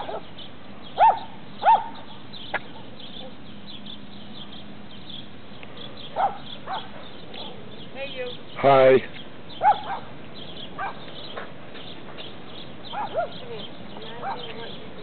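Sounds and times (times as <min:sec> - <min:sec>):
dog barking: 0:00.0 - 0:00.3, 0:01.0 - 0:02.1, 0:06.1 - 0:07.6, 0:09.6 - 0:10.1, 0:10.8 - 0:11.1, 0:12.9 - 0:13.5, 0:14.2 - 0:14.6.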